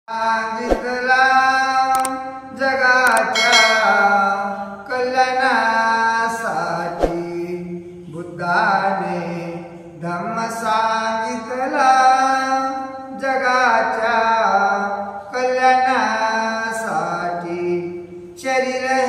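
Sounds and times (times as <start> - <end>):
man singing devotional song: 0.1 - 19.0
sharp knock: 3.2 - 4.3.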